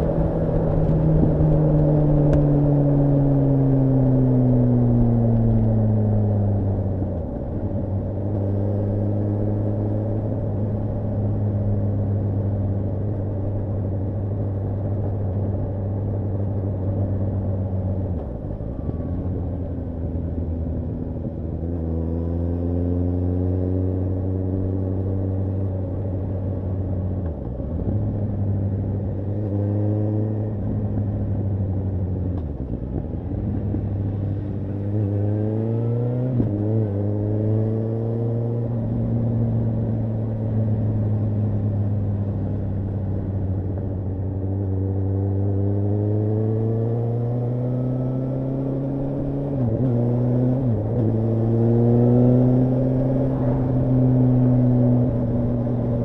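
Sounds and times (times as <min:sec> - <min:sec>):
motorcycle engine revving: 0:33.4 - 0:56.0.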